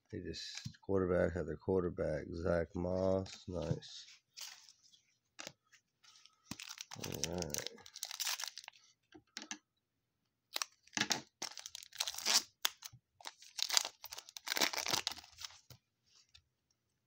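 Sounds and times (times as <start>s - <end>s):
foil wrapper crinkling: 6.2s - 8.8s, 10.5s - 15.7s.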